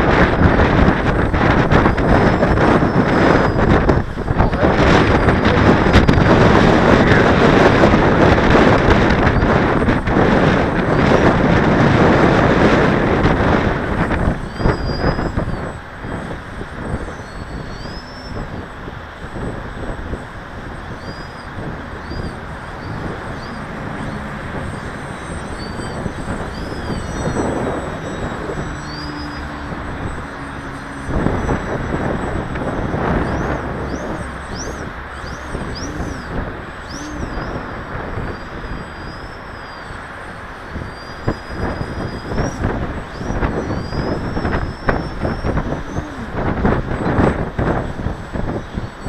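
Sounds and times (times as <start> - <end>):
model airplane motor whine: 0.0 - 49.0
wind buffeting microphone: 0.0 - 49.0.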